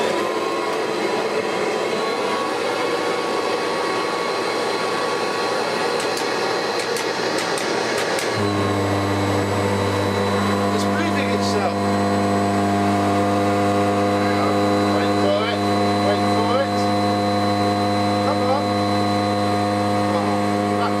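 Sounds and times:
vacuum cleaner running: 0.0s - 21.0s
deep steady hum: 8.3s - 21.0s.

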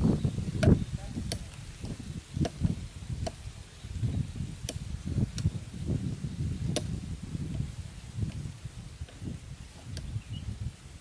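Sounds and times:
sharp snapping clicks: 0.6s - 1.6s.

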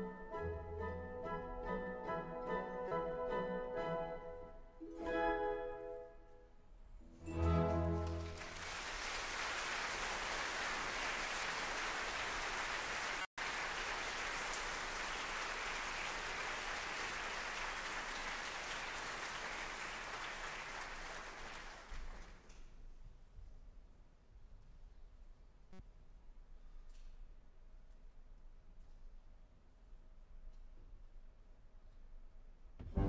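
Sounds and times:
audience applauding: 7.4s - 22.5s.

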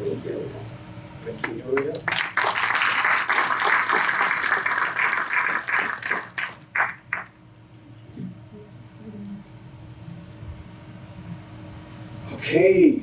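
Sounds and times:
audience applauding: 1.8s - 7.3s.

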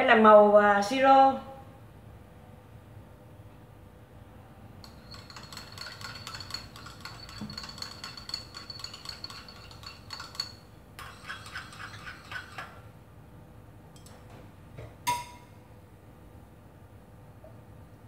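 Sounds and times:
chopsticks clinking in ceramic bowl: 4.8s - 12.8s.

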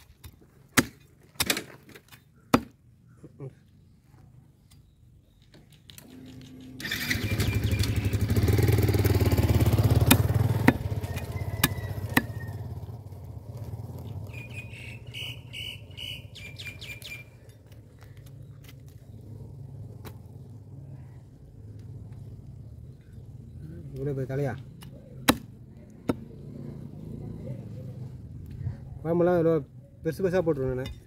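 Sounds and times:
vehicle engine: 5.7s - 29.5s
cleaver chopping on wooden block: 10.0s - 10.9s, 11.6s - 12.3s, 25.2s - 26.3s.

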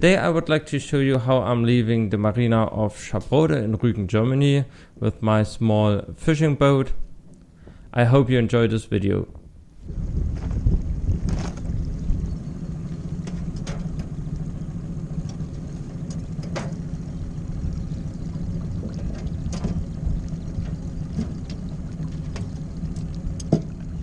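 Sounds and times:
outboard motor running: 9.8s - 24.0s.

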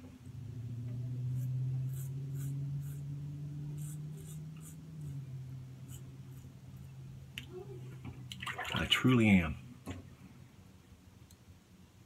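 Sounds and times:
steady low hum: 0.0s - 12.0s
razor scraping whiskers: 1.3s - 3.1s, 3.7s - 5.2s, 5.8s - 6.6s.

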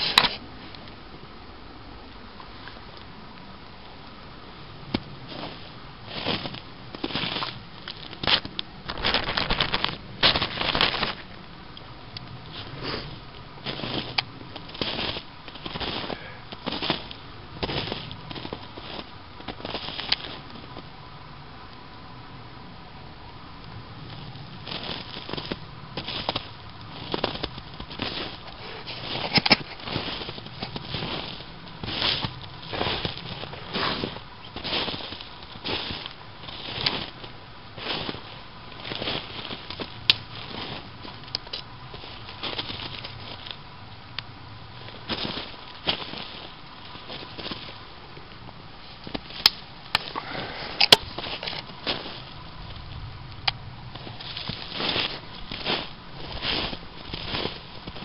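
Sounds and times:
branches rustling: 2.0s - 22.0s, 22.6s - 58.0s
twigs crackling: 2.1s - 21.0s, 23.6s - 58.0s
footsteps crunching in snow: 4.8s - 11.3s, 12.5s - 20.9s, 24.0s - 43.6s, 44.7s - 48.2s, 50.0s - 53.1s, 53.9s - 58.0s
dry twigs snapping: 6.4s - 12.4s, 38.0s - 43.6s, 44.2s - 58.0s.

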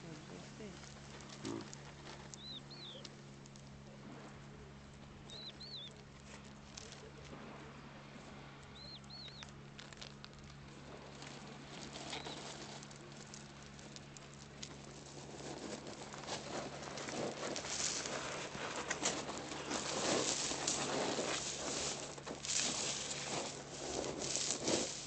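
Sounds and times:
rustling: 0.0s - 7.7s, 8.7s - 25.0s
faint scattered clicks: 1.1s - 3.8s, 8.6s - 10.6s.

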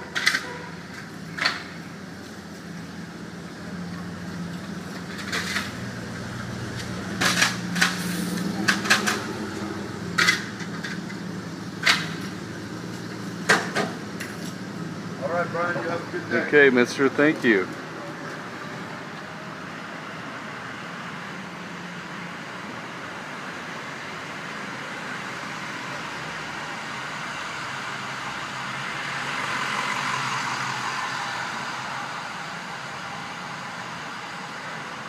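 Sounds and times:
street traffic noise: 0.0s - 35.0s.

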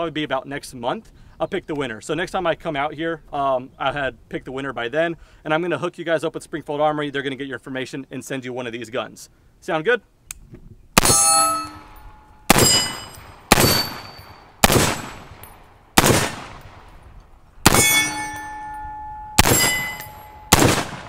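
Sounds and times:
rifle gunshots: 11.0s - 11.4s, 12.5s - 16.9s, 17.6s - 18.2s, 19.4s - 21.0s
steel target clanging: 11.0s - 14.4s, 17.7s - 20.7s.

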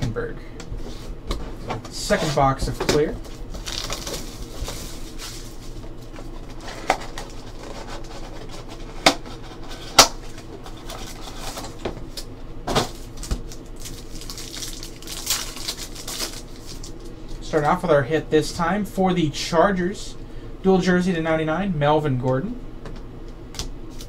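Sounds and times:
cardboard rustling and scraping: 0.8s - 12.0s.

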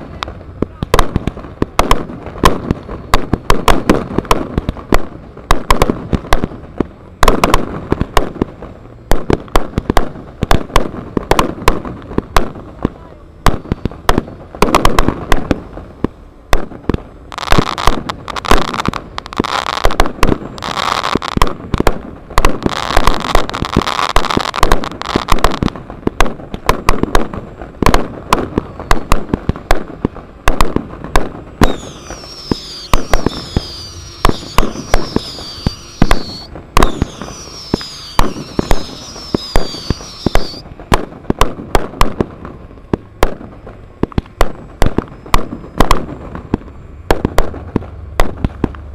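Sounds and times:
firecrackers banging: 0.0s - 48.9s
falling whistles: 31.6s - 40.6s.

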